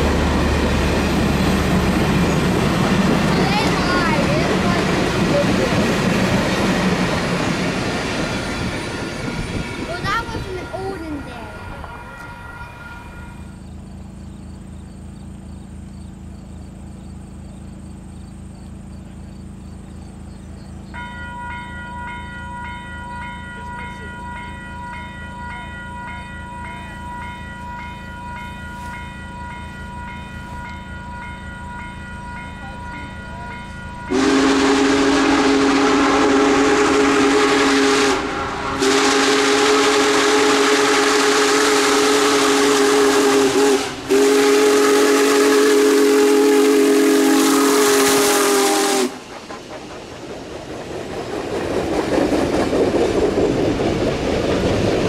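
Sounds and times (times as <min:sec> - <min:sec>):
steam whistle blasts: 0:34.1 - 0:49.2.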